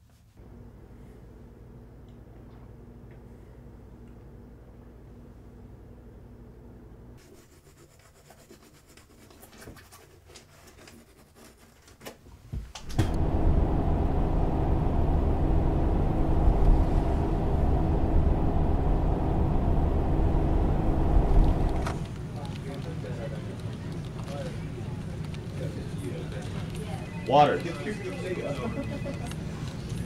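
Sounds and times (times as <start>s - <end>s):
car driving along street: 13.1s - 22.2s.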